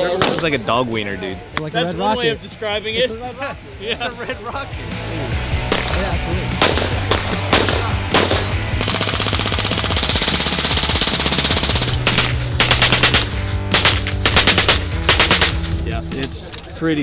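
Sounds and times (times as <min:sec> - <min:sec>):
background music with bass line: 0:00.0 - 0:17.0
machine-gun fire: 0:06.6 - 0:15.7.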